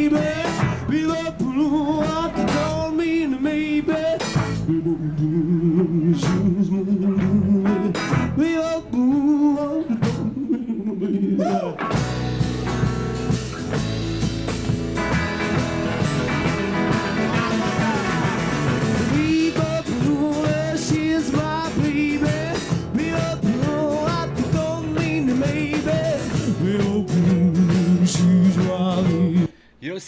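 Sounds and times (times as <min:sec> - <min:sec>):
man singing lead vocal: 0:00.0 - 0:11.8, 0:16.9 - 0:29.7
guitar: 0:00.0 - 0:29.7
percussion: 0:11.8 - 0:29.3.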